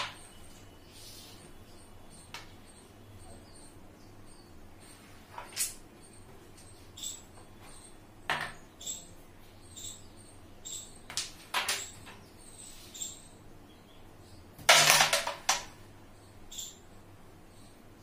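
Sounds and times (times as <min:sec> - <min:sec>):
carrom pieces clacking: 0:11.1 - 0:12.2, 0:14.6 - 0:15.8.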